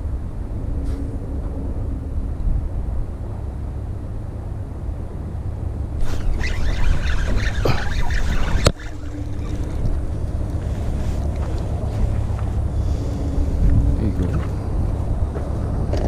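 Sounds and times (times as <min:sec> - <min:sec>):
wind buffeting microphone: 0:00.0 - 0:16.0
jacket and reel handling noise: 0:06.0 - 0:16.0.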